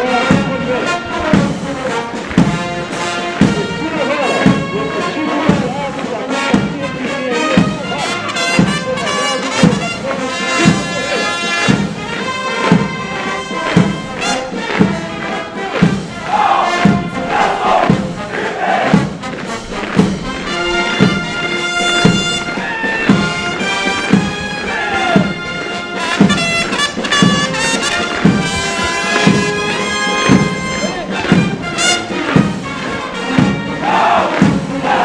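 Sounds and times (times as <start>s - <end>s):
brass military march: 0.0s - 35.0s
steady thumping beat: 0.0s - 35.0s
troops shouting: 0.0s - 35.0s.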